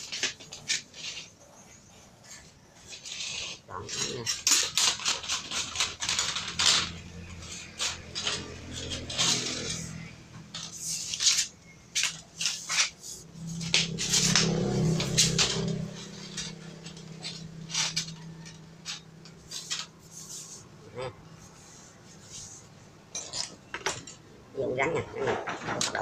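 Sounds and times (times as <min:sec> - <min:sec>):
wire clinking against metal tube: 0:02.9 - 0:19.9.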